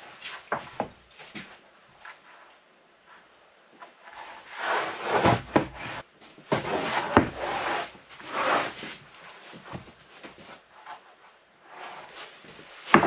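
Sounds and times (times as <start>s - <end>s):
wooden boards scraping: 3.9s - 11.1s, 11.7s - 13.0s.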